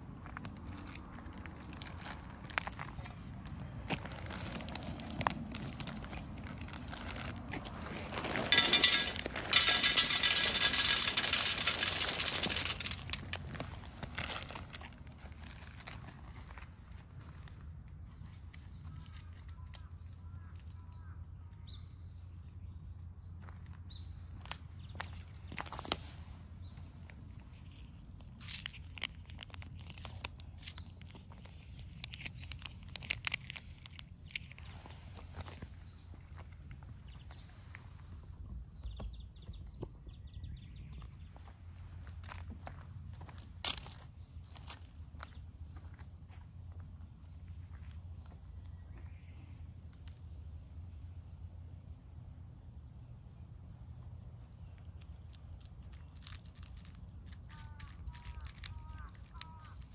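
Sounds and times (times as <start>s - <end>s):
dry cat food rustling: 0.6s - 19.5s, 25.5s - 36.5s, 54.9s - 59.9s
cat chewing crunchy food: 55.4s - 59.9s.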